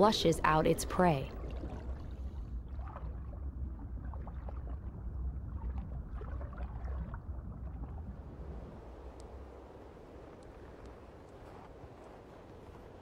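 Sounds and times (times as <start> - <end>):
faint bubbling: 0.8 - 11.7
low underwater rumble: 1.2 - 13.0.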